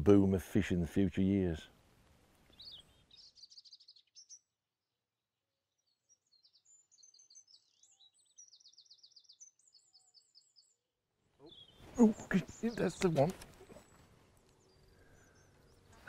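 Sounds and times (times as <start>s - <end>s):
songbirds chirping and trilling: 0.0s - 16.0s.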